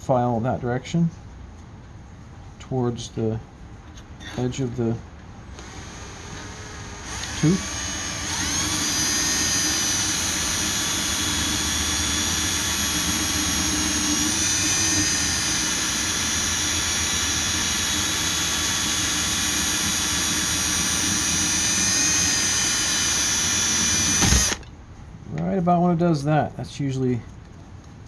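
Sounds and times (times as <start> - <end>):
electric drill motor whine: 5.6 - 24.7.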